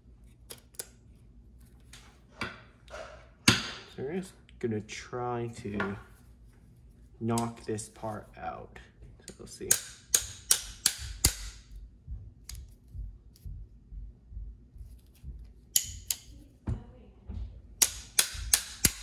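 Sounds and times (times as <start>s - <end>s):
metallic hammering taps: 9.3s - 11.7s, 15.4s - 16.3s, 17.8s - 19.0s.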